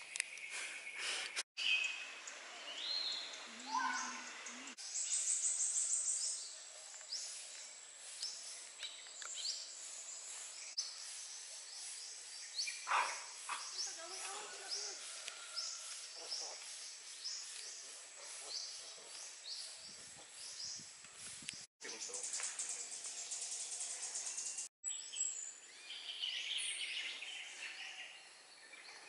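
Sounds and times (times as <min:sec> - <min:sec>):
birds whistling and chirping: 0:00.4 - 0:13.9.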